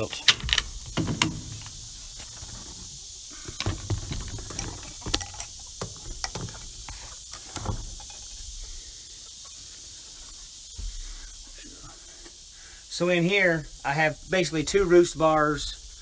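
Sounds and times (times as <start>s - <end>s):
footsteps and handling thumps: 0.0s - 12.5s
steady high hiss: 0.0s - 16.0s.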